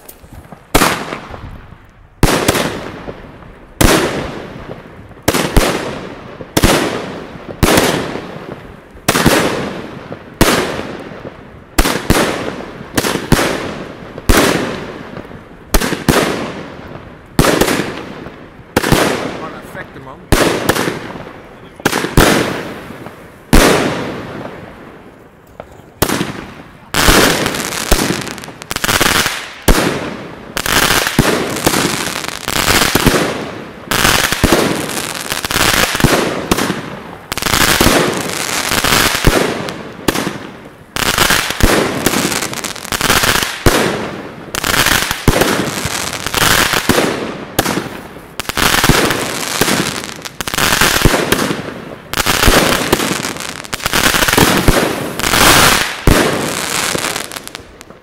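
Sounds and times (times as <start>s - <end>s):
fireworks bangs with crackle: 0.0s - 58.0s.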